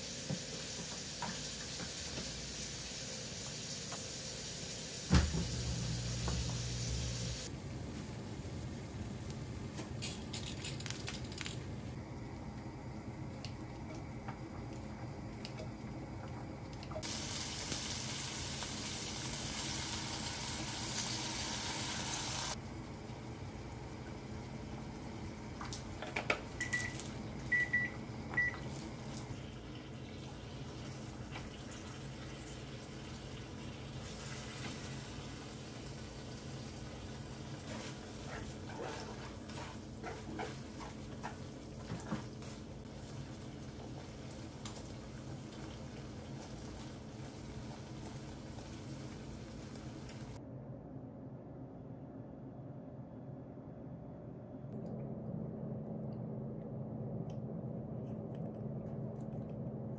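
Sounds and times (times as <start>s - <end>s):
kitchen tap running: 0.1s - 7.4s
low hum: 50.4s - 59.9s.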